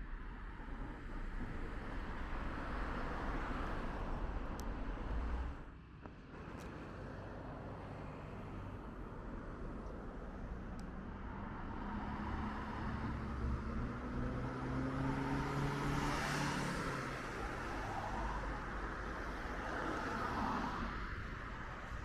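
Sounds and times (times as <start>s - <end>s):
vehicle passing: 11.7s - 18.5s
car driving past: 11.8s - 18.4s.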